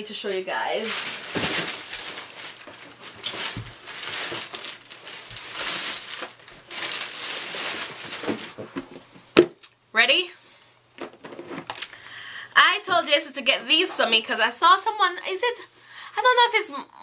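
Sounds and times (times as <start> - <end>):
packaging crinkling: 0.8 - 9.1.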